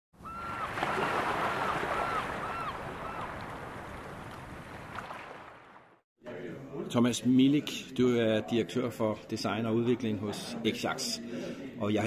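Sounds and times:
sea waves: 0:00.2 - 0:06.0
wind: 0:00.2 - 0:06.0.

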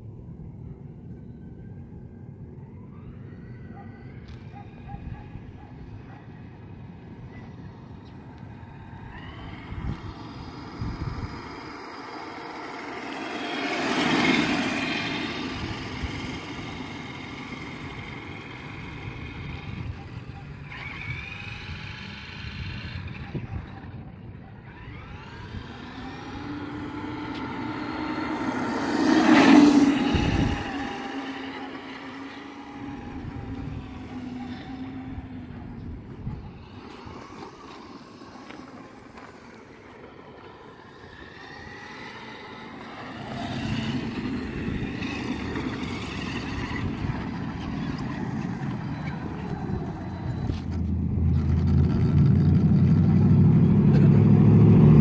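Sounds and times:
electric motor whine: 0:07.8 - 0:24.0, 0:24.6 - 0:55.0
tyre noise on pavement: 0:24.8 - 0:54.3.

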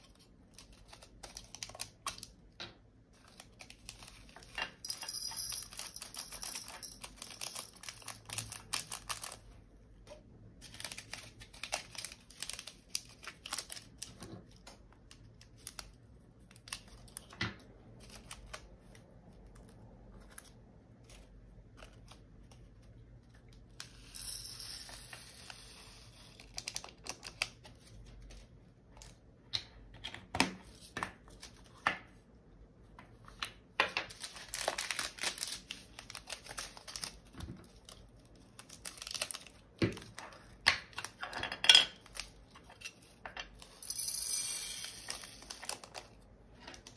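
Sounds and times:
plastic bags crinkling: 0:05.7 - 0:09.5, 0:34.1 - 0:40.6, 0:45.1 - 0:46.2.

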